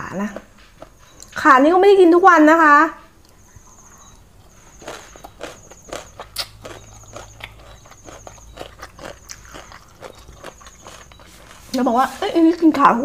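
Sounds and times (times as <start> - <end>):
wet chewing clicks and smacks: 0.3 - 1.4, 3.2 - 11.8.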